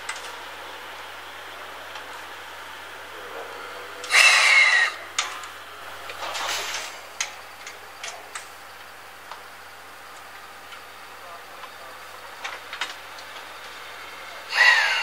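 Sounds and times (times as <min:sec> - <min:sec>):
steam locomotive hiss: 0:00.7 - 0:05.8, 0:13.5 - 0:15.0.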